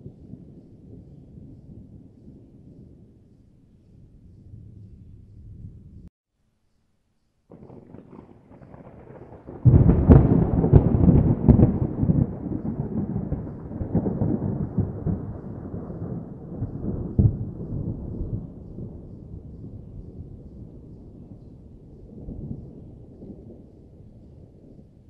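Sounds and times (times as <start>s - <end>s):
thunder rumbling and cracking: 7.5s - 25.0s.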